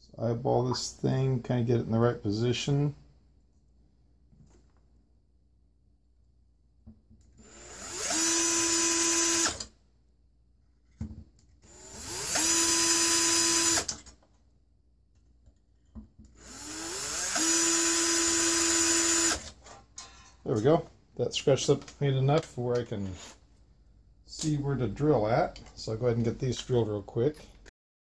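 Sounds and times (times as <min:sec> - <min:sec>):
cordless drill whining: 0:07.4 - 0:09.7, 0:11.6 - 0:14.0, 0:16.4 - 0:19.6
drill bit scratching paint: 0:11.8 - 0:13.9, 0:16.4 - 0:19.4.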